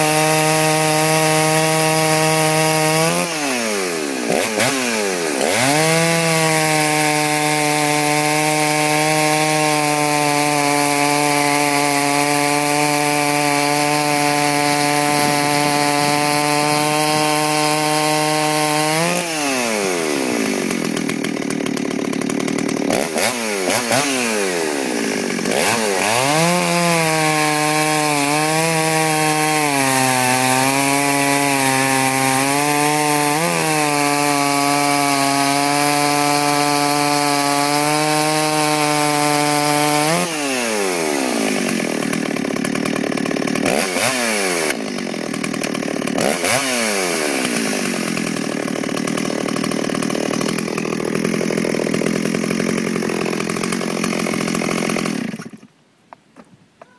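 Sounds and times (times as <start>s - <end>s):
chainsaw cutting log: 0.0s - 56.9s.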